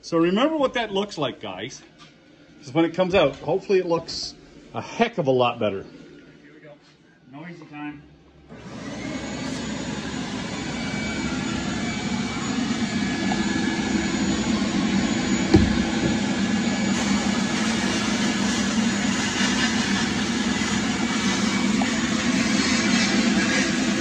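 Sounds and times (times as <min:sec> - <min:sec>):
sandblast gun hissing: 0:14.8 - 0:24.0
short knock: 0:15.5 - 0:16.2.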